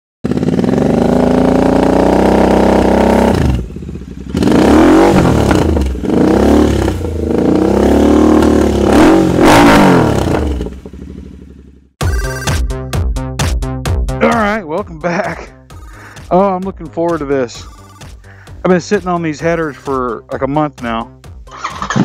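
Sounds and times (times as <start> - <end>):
motorcycle engine revving: 0.2 - 12.0.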